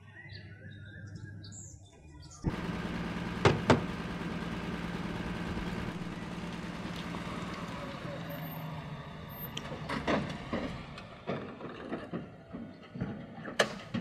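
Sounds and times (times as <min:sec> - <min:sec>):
truck engine running: 0:02.4 - 0:11.8.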